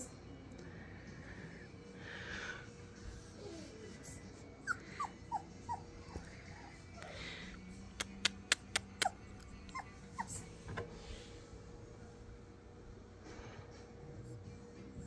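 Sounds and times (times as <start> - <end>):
puppy whimpering: 3.4 - 7.2, 9.0 - 10.5.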